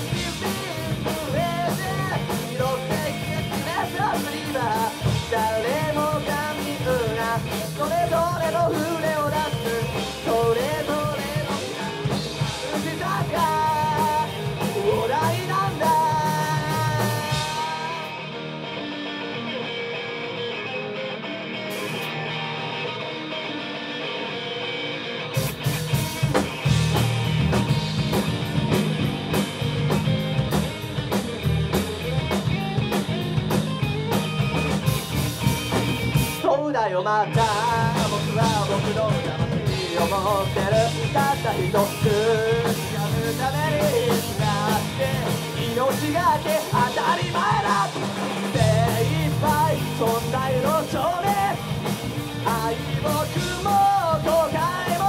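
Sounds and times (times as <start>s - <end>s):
person singing: 0.0s - 18.5s, 36.4s - 55.0s
live rock band playing: 0.0s - 55.0s.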